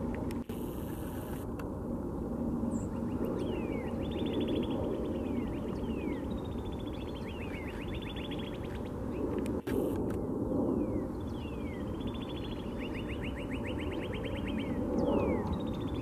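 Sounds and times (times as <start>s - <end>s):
steady low rumble: 0.0s - 16.0s
bird singing whistled notes: 10.8s - 16.0s.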